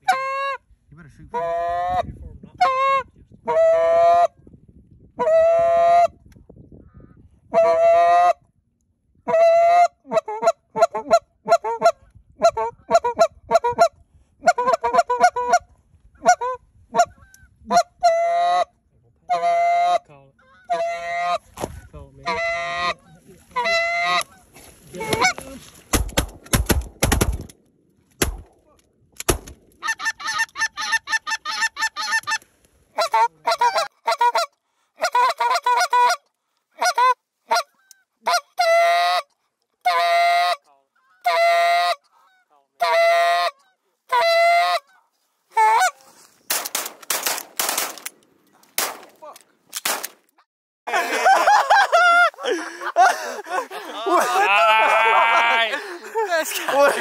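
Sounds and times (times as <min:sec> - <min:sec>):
goose honking: 0:19.3 - 0:21.5, 0:22.2 - 0:25.5, 0:29.8 - 0:32.4, 0:33.0 - 0:36.2, 0:36.8 - 0:46.2.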